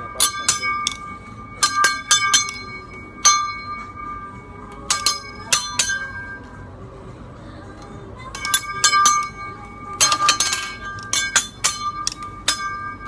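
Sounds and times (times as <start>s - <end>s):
metal spatulas clanging: 0.0s - 4.0s, 4.8s - 6.4s, 8.3s - 13.0s.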